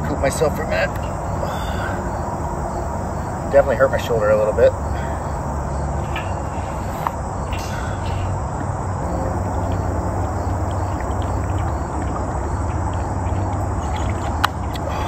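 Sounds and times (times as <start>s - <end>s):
crickets chirping: 0.0s - 15.0s
low steady rumble: 0.0s - 15.0s.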